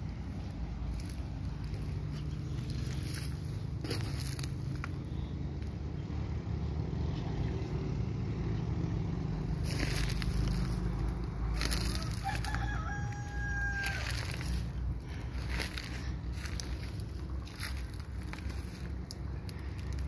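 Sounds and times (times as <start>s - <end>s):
loader engine rumbling: 0.0s - 20.0s
rooster crowing: 11.5s - 14.8s.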